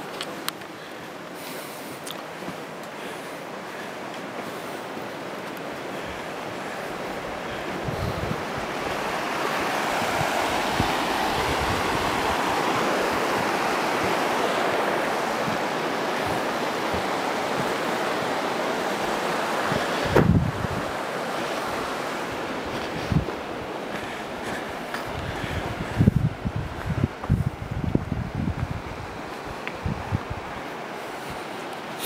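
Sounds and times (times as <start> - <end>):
river rushing over rocks: 0.0 - 32.0
wind buffeting microphone: 5.8 - 31.4.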